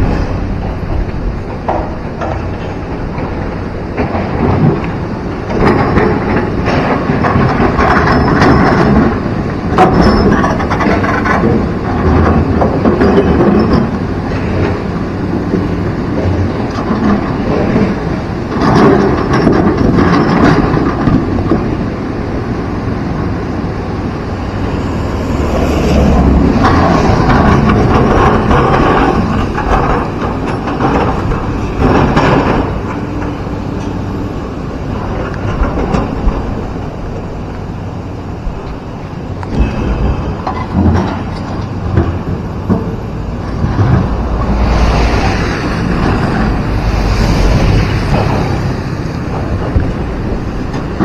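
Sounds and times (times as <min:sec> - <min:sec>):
excavator engine under load: 0:00.0 - 0:51.0
river water rushing: 0:21.8 - 0:51.0.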